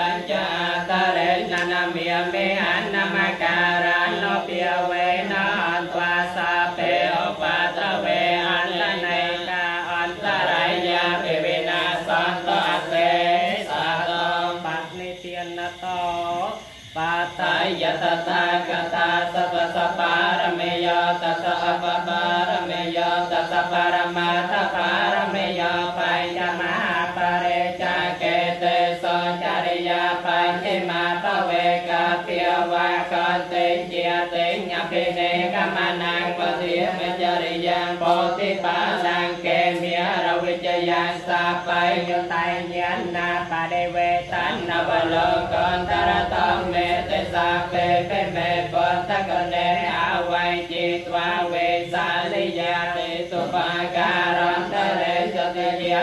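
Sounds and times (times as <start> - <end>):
monks chanting in unison: 0.0 - 56.0.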